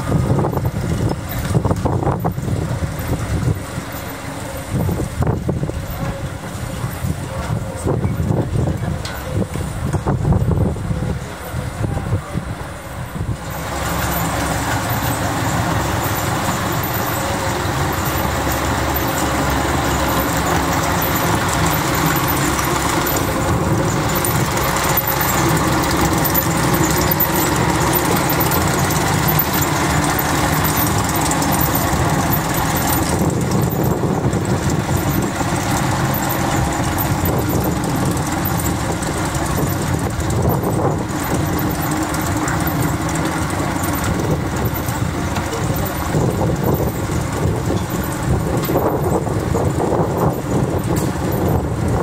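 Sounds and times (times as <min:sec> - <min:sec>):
vehicle engine running: 0:00.0 - 0:52.0.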